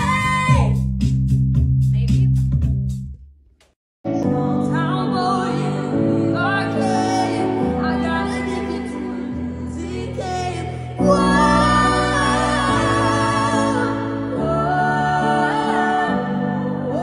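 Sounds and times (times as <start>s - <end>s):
music with quick regular beat: 0.5s - 3.3s
woman singing slow ballad: 4.2s - 17.0s.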